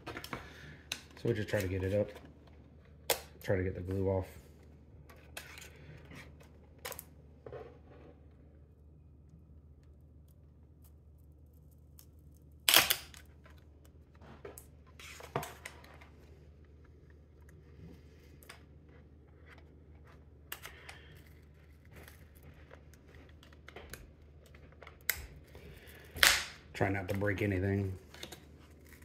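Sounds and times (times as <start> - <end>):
battery pack cracking off glue: 12.7 - 13.3.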